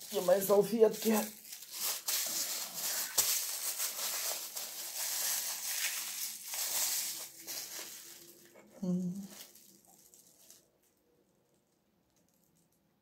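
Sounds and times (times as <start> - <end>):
paper napkin rustling: 0.0 - 9.7.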